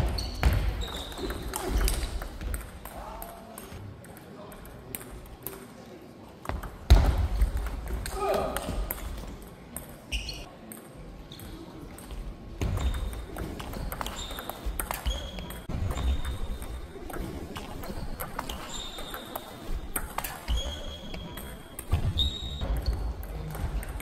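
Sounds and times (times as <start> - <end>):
shoe squeaks on floor: 0.0 - 2.1, 10.1 - 10.5, 14.0 - 16.6, 17.9 - 19.6, 20.4 - 23.0.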